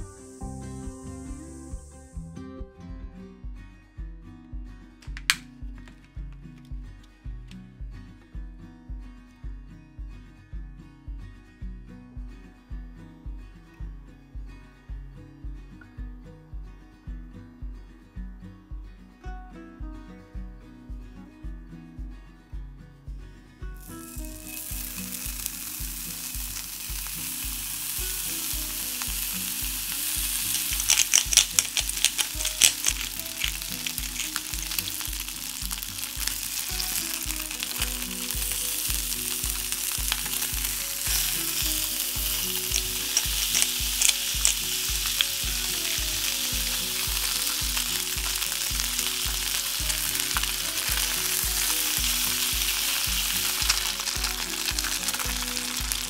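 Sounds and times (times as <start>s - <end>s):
meat sizzling in a skillet: 0.0s - 2.2s, 23.8s - 56.0s
fat popping and crackling: 5.0s - 6.7s, 23.8s - 56.0s.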